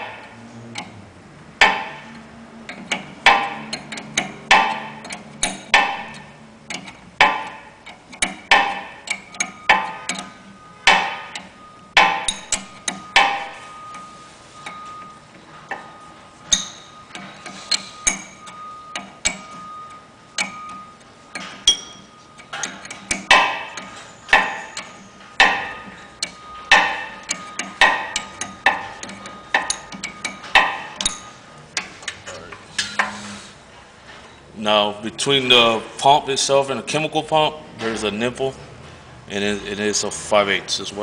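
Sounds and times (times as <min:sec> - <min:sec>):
wrench clicking on metal fittings: 0:01.6 - 0:14.0, 0:16.5 - 0:19.6, 0:20.4 - 0:32.2.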